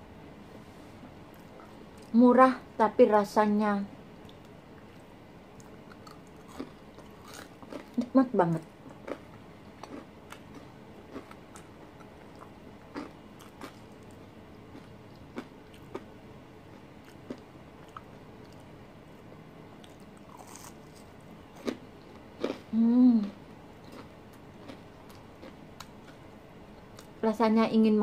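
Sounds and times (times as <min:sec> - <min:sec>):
crisp chewing crunches: 0:04.2 - 0:08.2, 0:08.8 - 0:16.1, 0:16.7 - 0:22.7.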